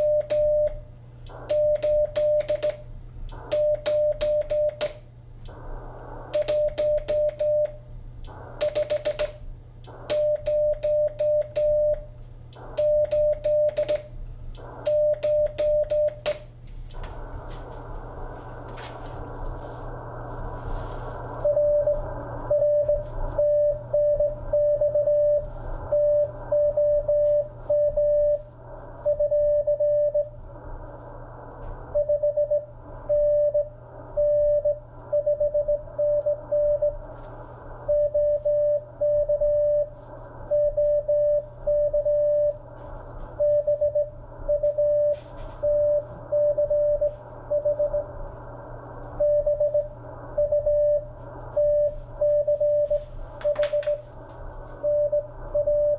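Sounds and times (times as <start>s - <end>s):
morse code tone: 0.0s - 0.8s, 1.4s - 4.9s, 9.9s - 16.4s, 21.4s - 30.3s, 37.8s - 42.6s, 43.4s - 48.1s, 49.2s - 54.0s, 54.8s - 55.9s
steady hiss and low hum: 0.0s - 55.9s.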